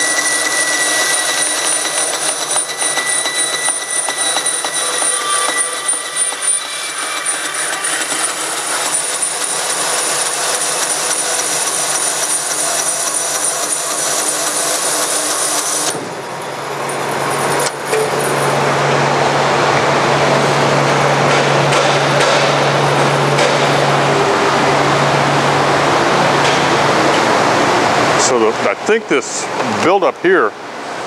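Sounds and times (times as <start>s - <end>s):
bandsaw cutting plastic film: 0.0s - 16.1s
bandsaw humming: 0.0s - 28.4s.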